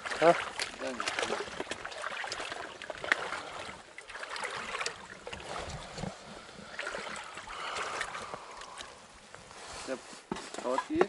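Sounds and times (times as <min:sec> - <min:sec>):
river water sloshing and splashing: 0:00.0 - 0:09.9.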